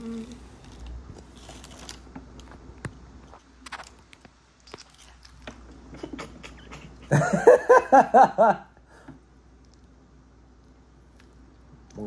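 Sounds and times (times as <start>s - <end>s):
crunchy chewing: 3.4s - 5.9s, 10.6s - 12.0s.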